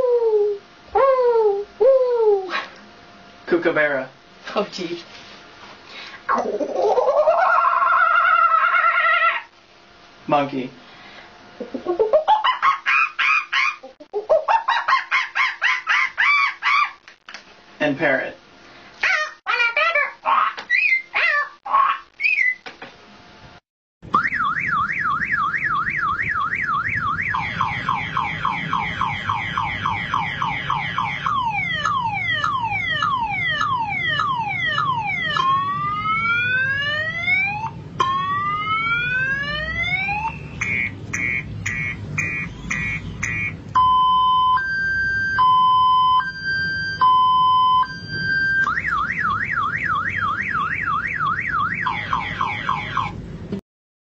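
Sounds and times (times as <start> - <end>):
man imitating a car alarm: 24.2 - 36.9, 40.1 - 44.5, 48.6 - 53.1.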